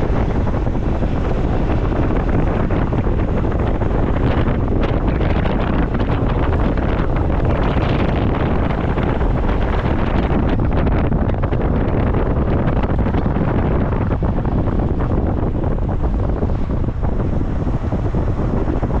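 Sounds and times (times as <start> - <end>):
wind buffeting microphone: 0.0 - 19.0.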